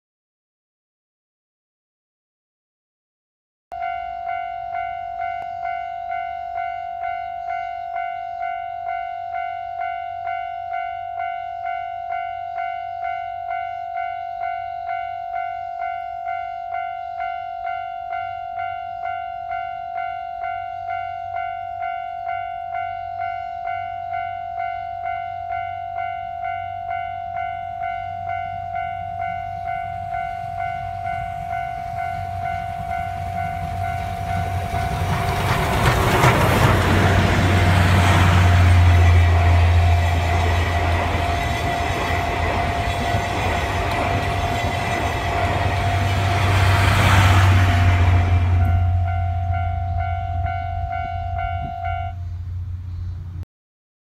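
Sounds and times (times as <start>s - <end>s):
level crossing bell ringing: 3.8s - 35.2s, 48.5s - 52.2s
steam train rumbling past: 26.4s - 53.4s
train wheels clattering: 29.6s - 49.0s.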